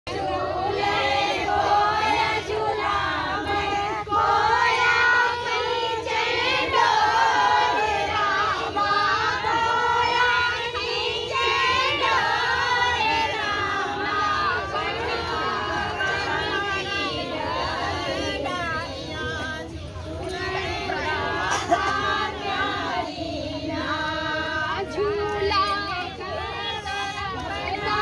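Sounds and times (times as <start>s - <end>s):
high voices singing folk song: 0.1s - 28.0s.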